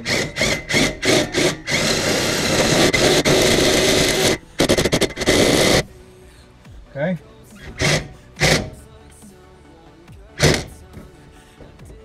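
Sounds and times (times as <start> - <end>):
cordless drill with hole saw on steel: 0.0 - 5.9, 7.6 - 8.9, 10.4 - 10.8.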